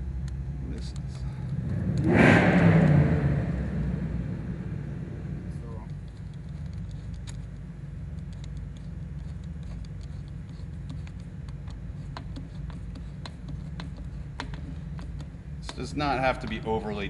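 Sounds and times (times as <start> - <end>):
steady low hum: 0.0 - 17.0
screwdriver clicks and scrapes: 6.0 - 15.3.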